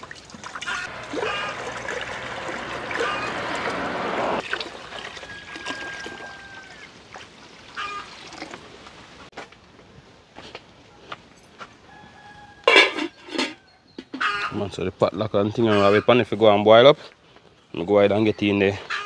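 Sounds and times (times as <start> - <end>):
water pouring into pot: 0.0 - 8.8.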